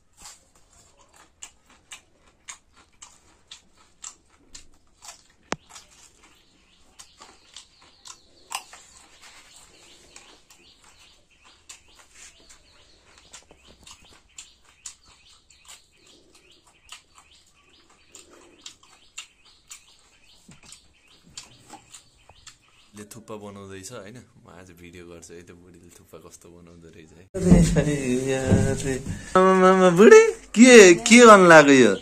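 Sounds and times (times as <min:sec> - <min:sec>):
birds chirping: 0:05.2 - 0:23.3, 0:27.4 - 0:32.0.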